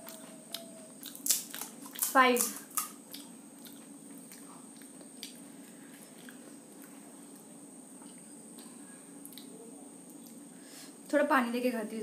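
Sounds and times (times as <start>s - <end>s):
chewing crisp food: 0.0s - 7.5s
steady low hum: 0.0s - 12.0s.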